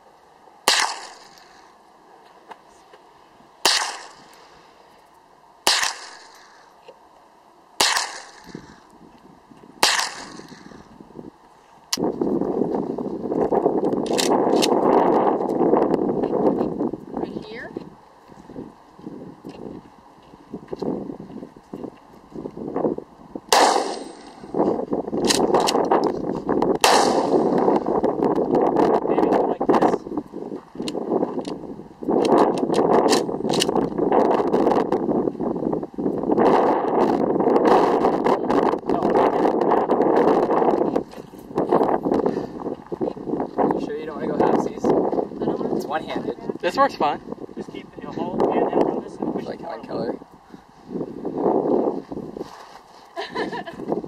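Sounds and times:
gunshots: 0:00.6 - 0:01.7, 0:03.6 - 0:04.5, 0:05.6 - 0:06.7, 0:07.8 - 0:08.8, 0:09.8 - 0:10.8, 0:23.5 - 0:24.6, 0:26.8 - 0:27.8
rifle shots with echo: 0:00.6 - 0:01.7, 0:03.6 - 0:04.5, 0:05.6 - 0:06.7, 0:07.8 - 0:08.8, 0:09.8 - 0:10.8, 0:23.5 - 0:24.5, 0:26.8 - 0:27.7.

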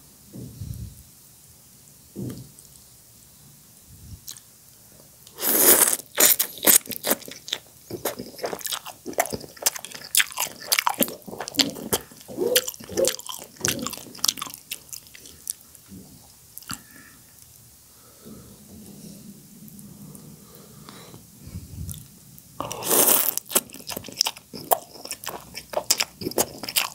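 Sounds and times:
wet chewing and mouth smacking: 0:04.2 - 0:04.5, 0:05.3 - 0:15.8, 0:22.7 - 0:26.9
loud slurp of noodles: 0:05.4 - 0:06.8, 0:22.6 - 0:23.4.

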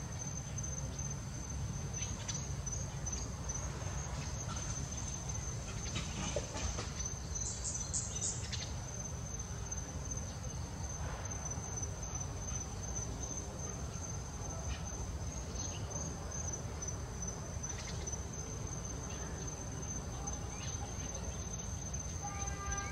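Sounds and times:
insects droning: 0:00.0 - 0:22.9.

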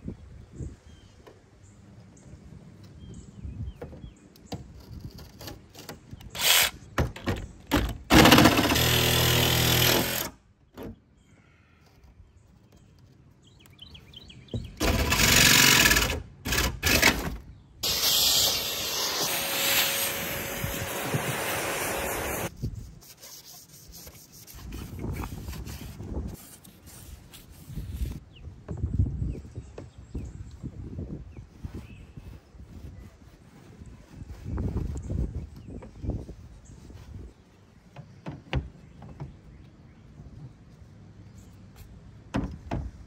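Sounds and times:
jigsaw cutting sheet metal: 0:08.1 - 0:10.3, 0:14.8 - 0:22.5
vacuum cleaner running: 0:17.8 - 0:22.5.

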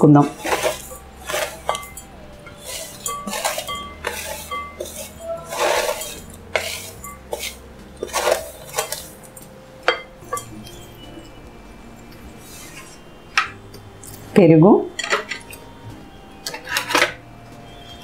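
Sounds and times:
spatula scraping steel plate: 0:00.1 - 0:10.8, 0:12.4 - 0:13.6, 0:16.4 - 0:17.2
steel plate clinking on glass bowl: 0:00.2 - 0:09.1.

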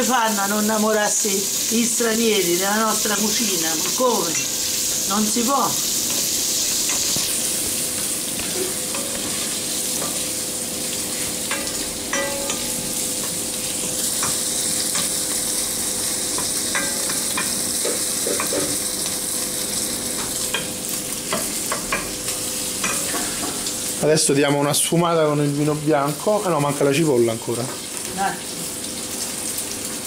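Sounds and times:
meat sizzling in a pan: 0:00.0 - 0:30.0
wooden spoon knocking pan: 0:11.5 - 0:12.7, 0:16.4 - 0:18.8.

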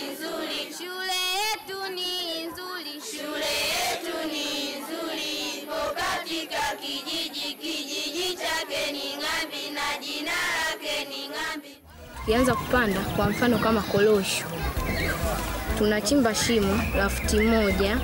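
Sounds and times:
children singing together: 0:00.0 - 0:11.8.

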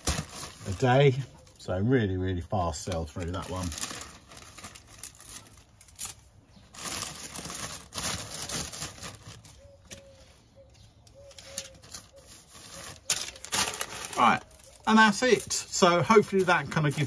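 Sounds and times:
plastic packaging crinkling: 0:00.0 - 0:01.1, 0:02.8 - 0:10.0, 0:11.4 - 0:15.5
faint bird calls: 0:09.2 - 0:15.0.

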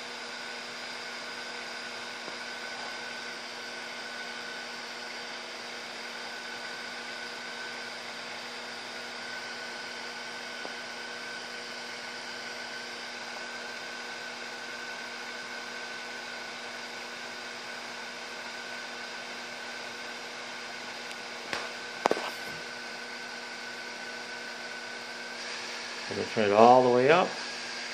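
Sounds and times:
gas burner hissing: 0:00.0 - 0:15.3, 0:19.5 - 0:27.9
steady hum: 0:21.1 - 0:24.2.

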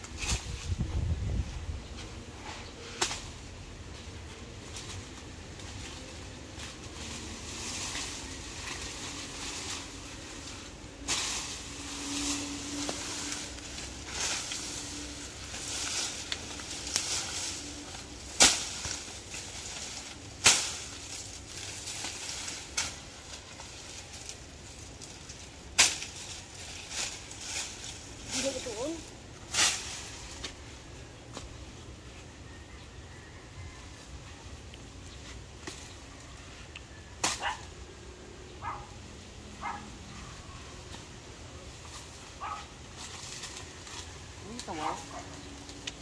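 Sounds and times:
dry leaves rustling and crackling: 0:00.0 - 0:46.0
leaf stalks cracking: 0:04.6 - 0:30.6, 0:41.8 - 0:46.0.

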